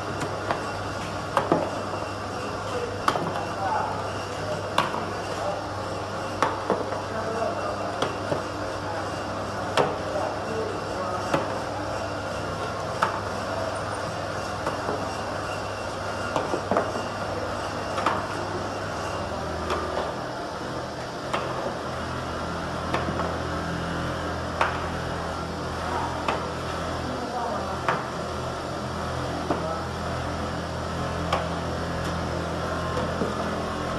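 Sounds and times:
machine motor hum: 0:00.0 - 0:33.9.

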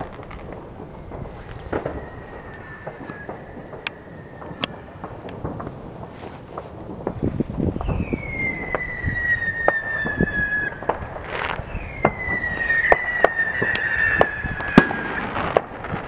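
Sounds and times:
firework whistles falling in pitch: 0:00.0 - 0:05.2, 0:07.6 - 0:15.7
fireworks bangs and pops: 0:00.0 - 0:16.0.

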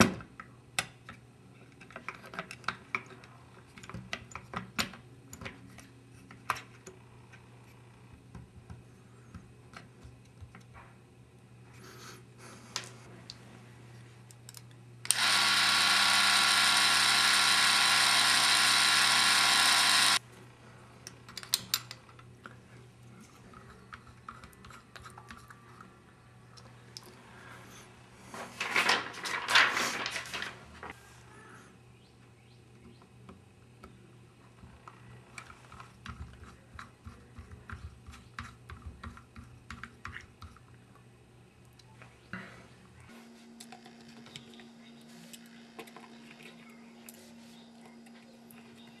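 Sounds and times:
clockwork camera motor whirring: 0:15.1 - 0:20.2.

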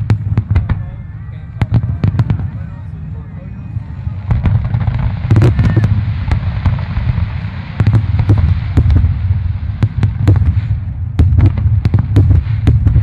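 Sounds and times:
fireworks bangs: 0:00.0 - 0:13.0
low rumble of booms: 0:00.0 - 0:13.0.

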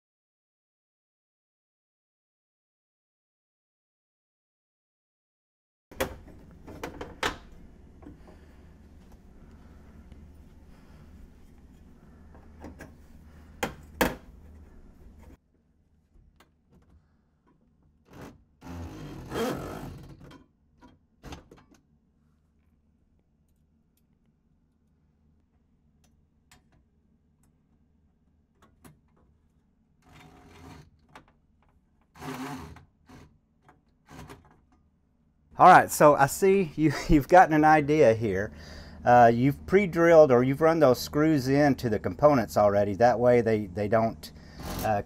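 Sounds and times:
steady low hum: 0:06.2 - 0:15.4, 0:35.6 - 0:45.0
cordless drill driving screws: 0:32.2 - 0:33.2.

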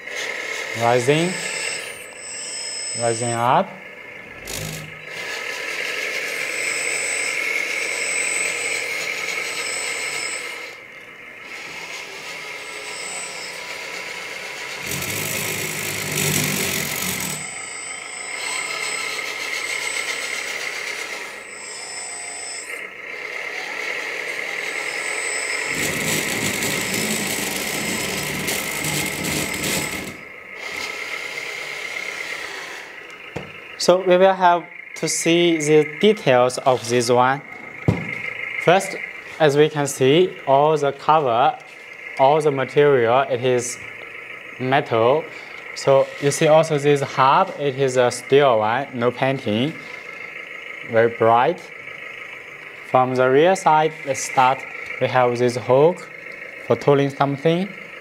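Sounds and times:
high motor whine: 0:00.0 - 0:58.0
mechanical running noise: 0:00.0 - 0:58.0.

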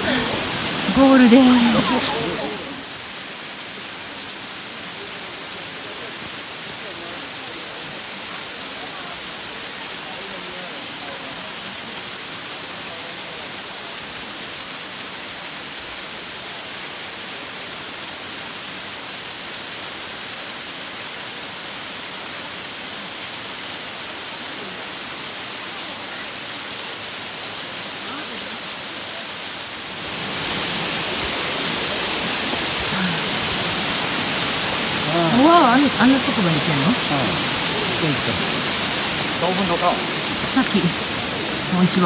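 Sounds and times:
water falling onto rocks: 0:08.0 - 0:42.0.

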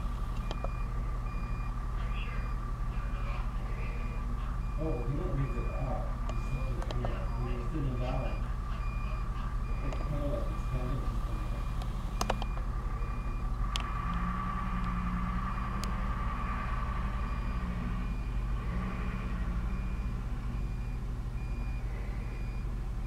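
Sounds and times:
truck backup alarm beeping: 0:00.0 - 0:23.0
truck engine running: 0:00.0 - 0:23.0
sharp clicks: 0:11.8 - 0:12.6.

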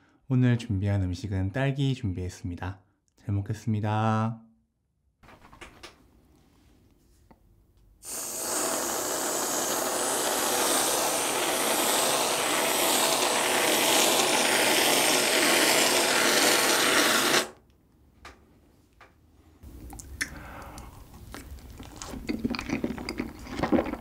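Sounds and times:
aerosol can spraying hiss: 0:08.0 - 0:17.6.

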